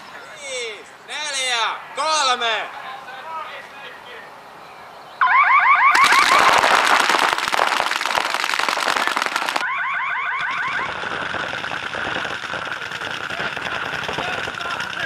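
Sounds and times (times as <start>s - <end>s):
electronic alarm warbling: 5.2s - 6.5s, 9.6s - 14.6s
paintball markers firing: 6.0s - 9.6s, 10.4s - 15.0s.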